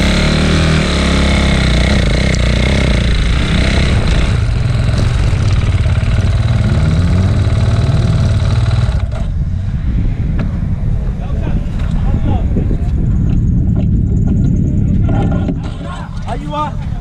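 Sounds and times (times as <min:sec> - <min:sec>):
dirt bike engine revving: 0:00.0 - 0:09.4.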